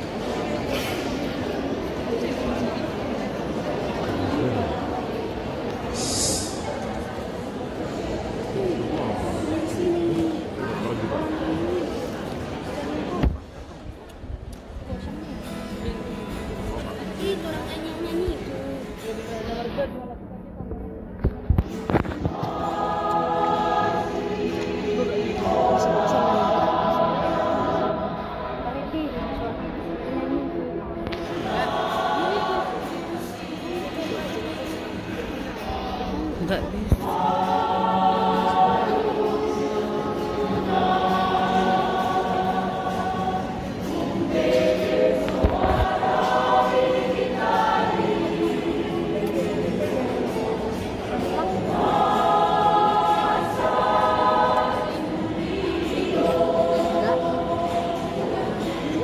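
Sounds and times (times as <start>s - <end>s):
mixed choir singing: 4.0s - 12.4s, 21.9s - 29.9s, 31.0s - 59.0s.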